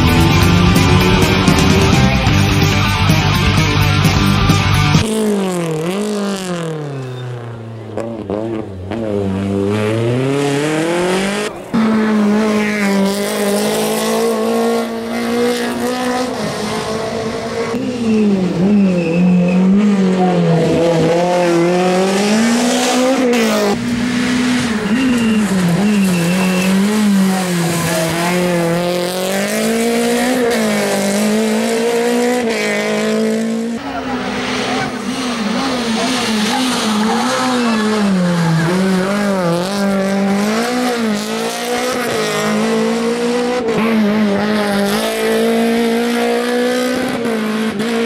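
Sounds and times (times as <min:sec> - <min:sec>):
rally car engine revving: 0:00.0 - 0:48.0.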